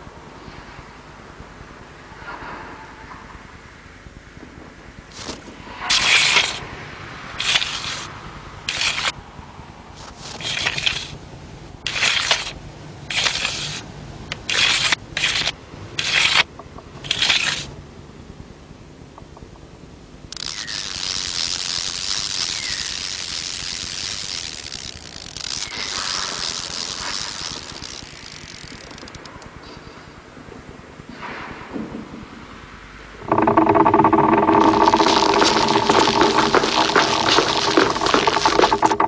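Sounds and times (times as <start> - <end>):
steady hiss: 0.0 - 18.9, 19.8 - 39.0
short bright scraping rasps: 5.1 - 6.6, 7.4 - 8.1, 8.7 - 9.2, 10.0 - 11.2, 11.9 - 13.8, 14.4 - 17.7, 20.3 - 29.3, 33.2 - 39.0.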